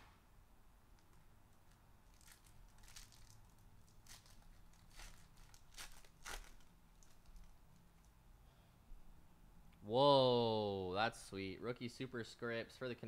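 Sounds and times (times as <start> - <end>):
foil wrapper crinkling and tearing: 1.6 - 7.6.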